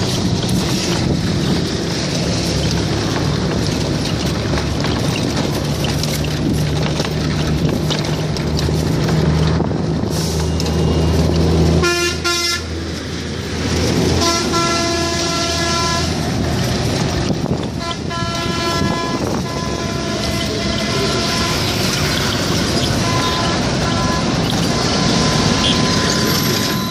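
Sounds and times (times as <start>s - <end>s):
heavy vehicle engine humming: 0.0s - 26.9s
road traffic: 0.0s - 26.9s
vehicle horns honking: 11.8s - 12.7s, 14.2s - 16.2s, 17.8s - 26.9s.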